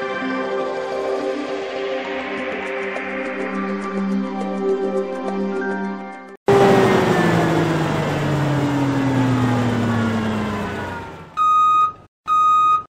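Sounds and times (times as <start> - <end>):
rushing vehicle with falling pitch: 6.5 - 11.4
reversing alarm beeping: 10.7 - 12.9.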